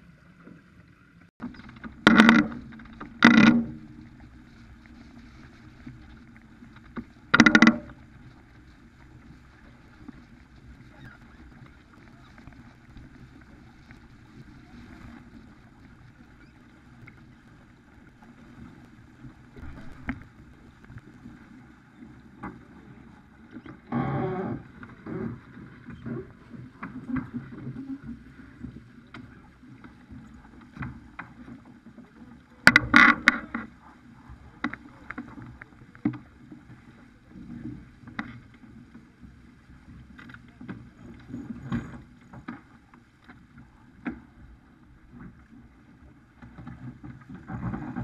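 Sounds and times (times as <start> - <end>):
water rushing: 0.0 - 22.2
wind: 0.0 - 48.0
rigging clicks and knocks: 1.4 - 3.7, 7.3 - 7.9.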